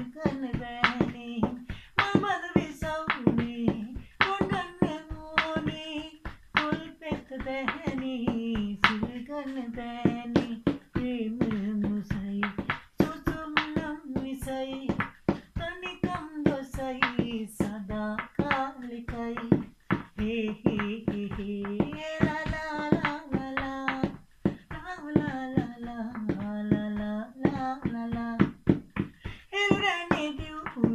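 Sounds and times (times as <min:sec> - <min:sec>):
hands tapping a beat: 0:00.0 - 0:30.9
man singing unaccompanied: 0:29.5 - 0:30.9.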